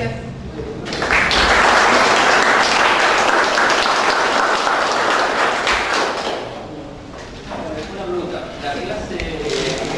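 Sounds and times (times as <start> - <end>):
audience applauding: 0.9 - 6.6.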